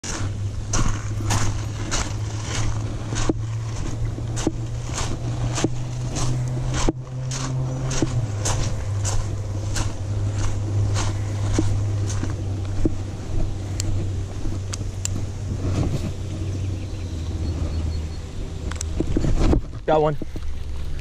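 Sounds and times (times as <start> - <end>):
footsteps crunching on gravel: 0.0 - 17.8
steady low hum: 0.0 - 21.0.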